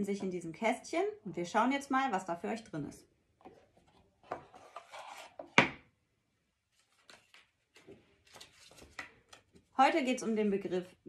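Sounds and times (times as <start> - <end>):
wooden lid rubbing and sliding: 4.4 - 5.5
paper rustling: 6.7 - 9.7.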